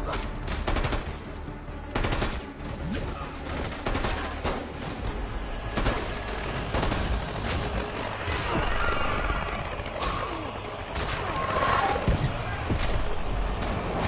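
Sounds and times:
film score music: 0.0s - 14.0s
gunfire bursts: 5.6s - 14.0s.

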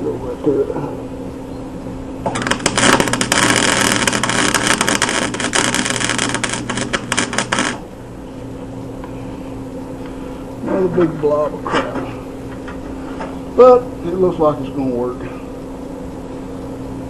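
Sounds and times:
steady low hum: 0.0s - 17.0s
arc welder crackling: 2.2s - 8.0s.

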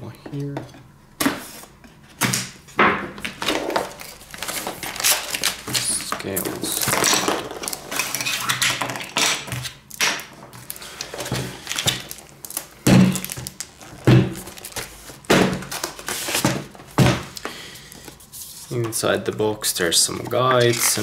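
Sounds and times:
cardboard rustling: 3.2s - 9.2s, 10.4s - 21.0s.

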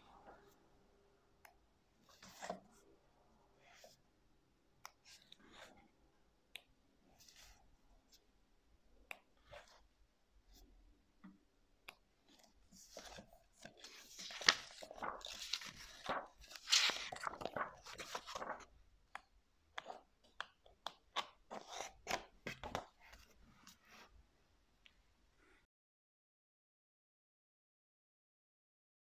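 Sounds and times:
book pages turning: 2.0s - 2.8s, 12.2s - 24.0s.

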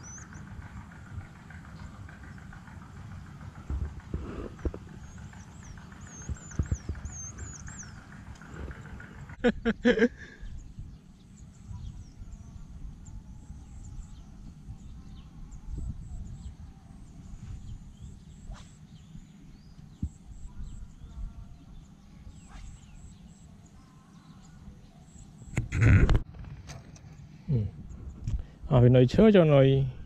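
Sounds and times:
wind rumble on microphone: 0.0s - 23.3s, 25.4s - 30.0s
faint bird chirps: 4.4s - 8.8s, 10.4s - 25.9s.

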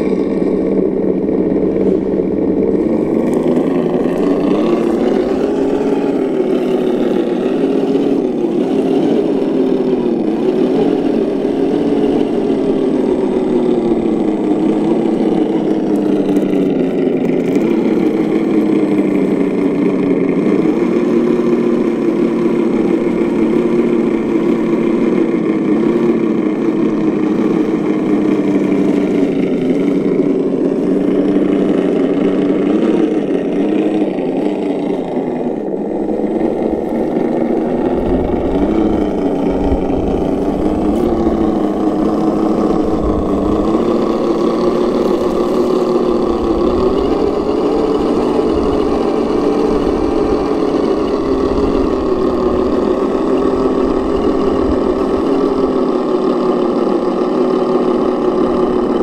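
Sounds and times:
engine sound from speaker: 0.0s - 59.0s.

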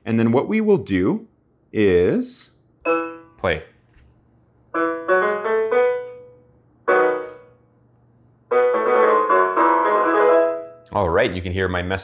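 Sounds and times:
digital piano chords: 2.8s - 3.4s, 4.7s - 7.6s, 8.5s - 10.9s.

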